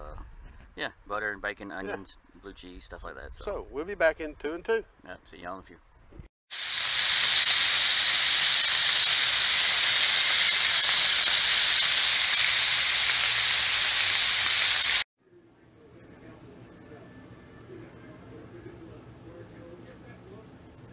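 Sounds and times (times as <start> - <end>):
bacon sizzling on a griddle: 6.5 - 15.0.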